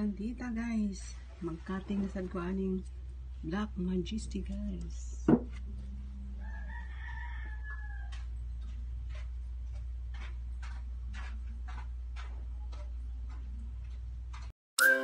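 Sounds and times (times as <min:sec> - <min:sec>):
steady low hum: 0:00.0 - 0:14.5
rooster crowing: 0:06.3 - 0:08.4.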